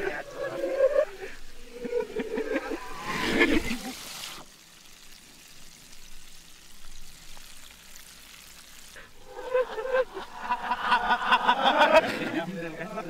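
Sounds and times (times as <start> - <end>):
reversed men's voices and laughter: 0.0 - 4.0, 9.2 - 13.0
oil sizzling in a pot: 0.0 - 9.3.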